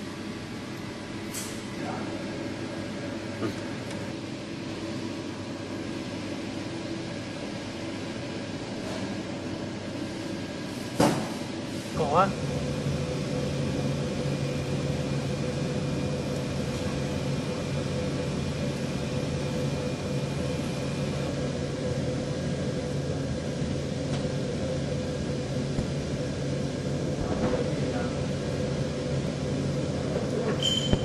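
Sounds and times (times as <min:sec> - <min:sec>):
low machinery drone: 0:00.0 - 0:31.0
faint high whine: 0:30.6 - 0:31.0.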